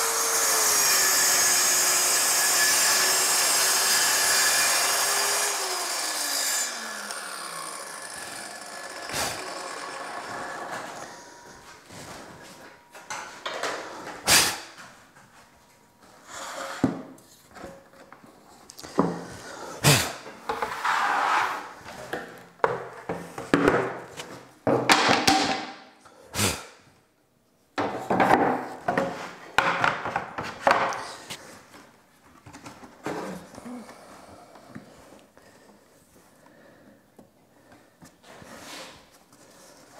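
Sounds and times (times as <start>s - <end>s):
knocks and thumps on workbench: 24.6s - 25.8s, 27.8s - 30.9s.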